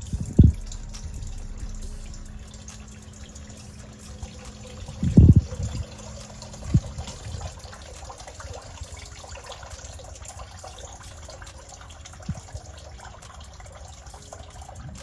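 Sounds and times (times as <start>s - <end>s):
low thumps: 0.0s - 7.5s
faint steady hum: 0.0s - 15.0s
sump pump running: 0.0s - 15.0s
water trickling and churning: 0.0s - 15.0s.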